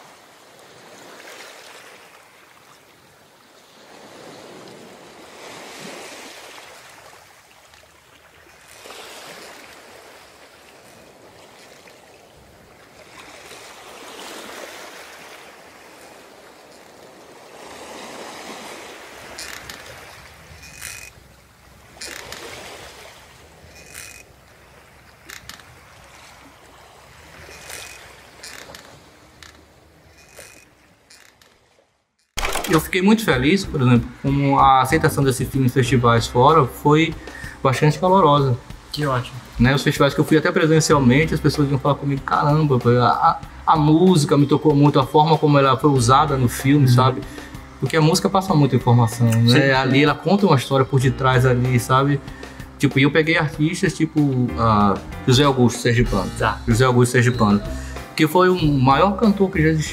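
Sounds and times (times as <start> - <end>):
waves washing in: 0.0 - 51.1, 51.9 - 59.9
sharp mechanical clicks: 32.3 - 33.0.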